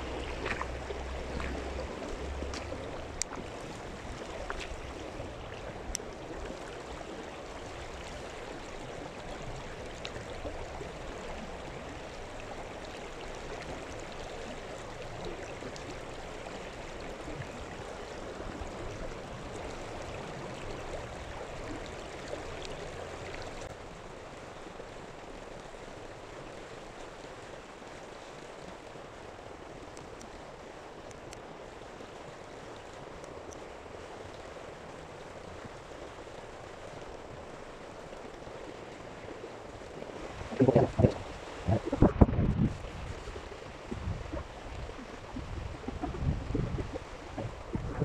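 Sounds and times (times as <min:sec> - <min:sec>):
water flowing: 0:00.0 - 0:48.0
low rumble: 0:40.4 - 0:48.0.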